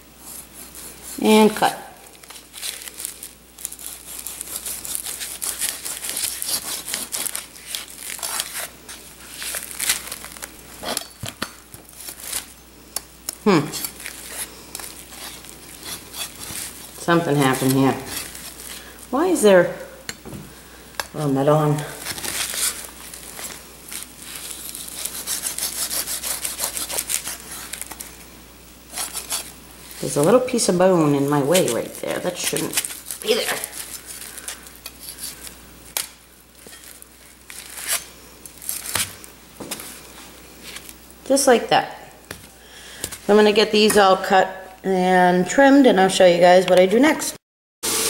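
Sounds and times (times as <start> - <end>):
plastic wrap crinkling: 0.4 - 19.2, 21.7 - 41.2
knife sawing through ribs: 3.8 - 8.7, 15.1 - 16.8, 24.4 - 27.8, 28.9 - 29.5.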